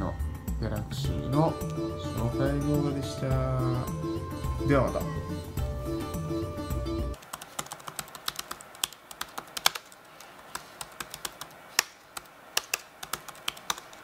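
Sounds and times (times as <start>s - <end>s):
typing on computer keyboard: 7.2s - 14.0s.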